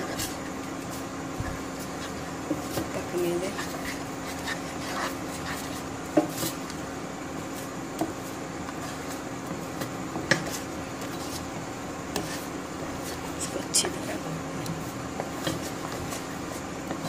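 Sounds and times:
steady hum: 0:00.0 - 0:17.0
spatula scraping a frying pan: 0:03.5 - 0:06.6, 0:12.1 - 0:13.3.

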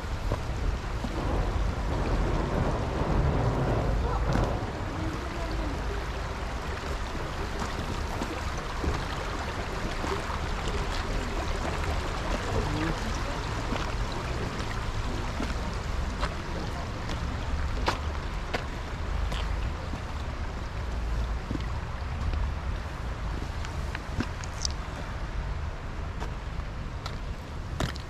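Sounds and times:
outdoor rumble and hiss: 0:00.0 - 0:28.0
distant voices: 0:01.0 - 0:20.4.

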